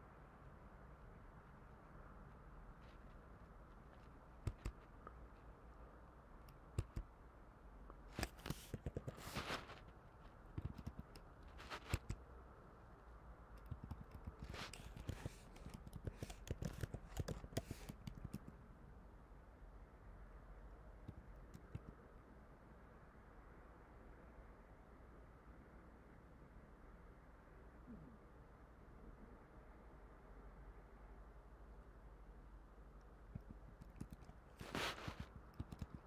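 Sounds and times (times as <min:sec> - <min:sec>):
keyboard typing: 0:03.7 - 0:05.2, 0:06.4 - 0:07.1, 0:08.2 - 0:09.6, 0:10.5 - 0:12.2, 0:13.6 - 0:18.6, 0:21.0 - 0:22.0, 0:33.3 - 0:36.0
rustling: 0:08.1 - 0:10.4, 0:34.5 - 0:35.5.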